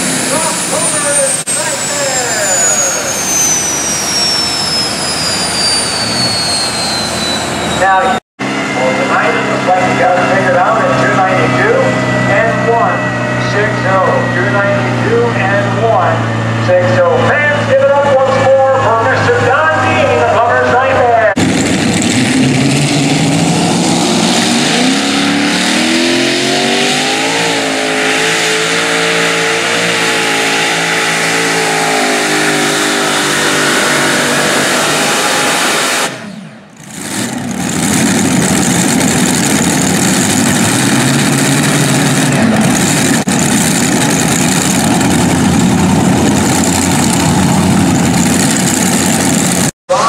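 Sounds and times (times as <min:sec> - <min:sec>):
tractor engines at full throttle: 0:00.0 - 0:50.0.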